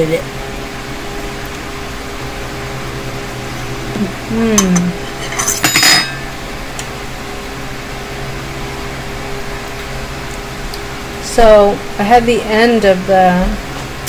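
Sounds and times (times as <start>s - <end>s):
steady background hum: 0.0s - 14.0s
fork clinking against ceramic bowl: 4.6s - 6.2s.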